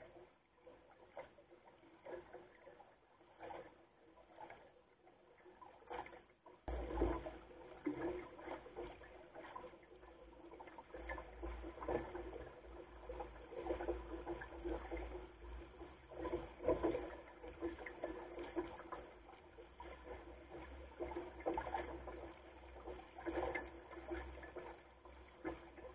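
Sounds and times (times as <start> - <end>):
water splashing against boat hull: 0.0 - 25.9.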